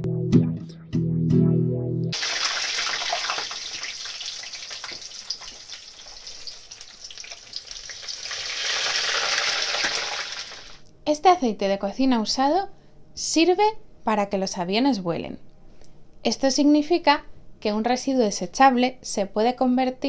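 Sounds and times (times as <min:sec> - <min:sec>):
food deep-frying in hot oil: 0:02.2 - 0:10.8.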